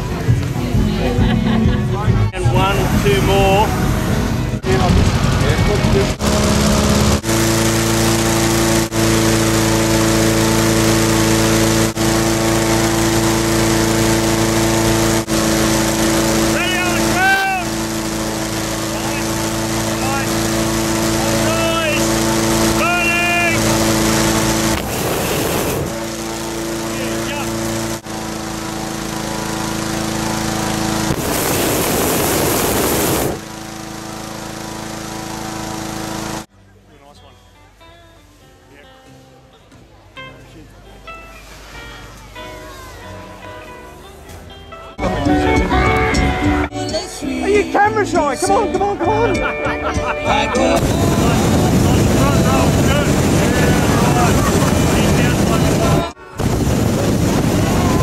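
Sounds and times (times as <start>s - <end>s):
engine-driven inflator fan running: 0.0s - 36.5s, 50.4s - 58.0s
propane burner rushing blast: 2.6s - 36.5s, 50.8s - 58.0s.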